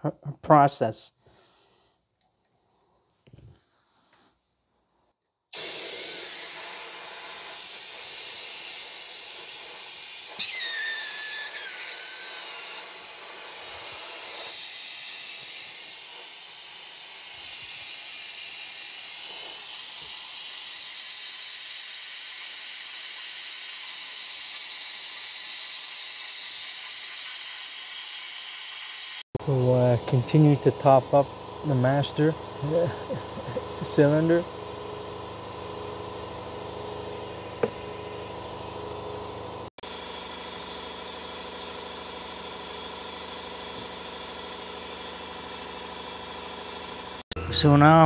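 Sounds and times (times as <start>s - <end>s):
vacuum brake bleeder hissing: 5.6s - 38.3s
short falling squeal: 10.4s - 12.8s.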